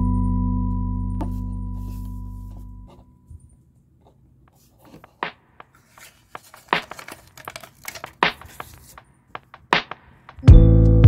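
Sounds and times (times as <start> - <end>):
plastic packaging crinkling and tearing: 5.8 - 9.0.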